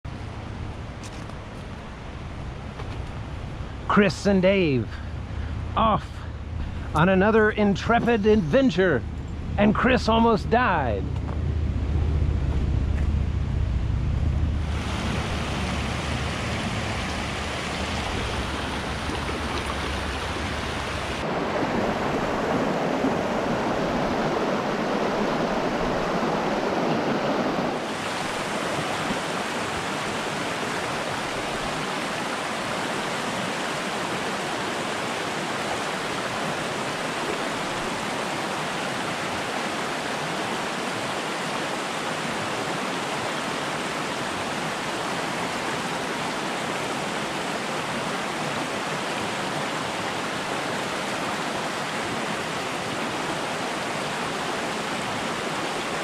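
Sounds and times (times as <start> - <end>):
low rumble: 4.9 - 21.2
stream rushing over rocks: 14.6 - 56.0.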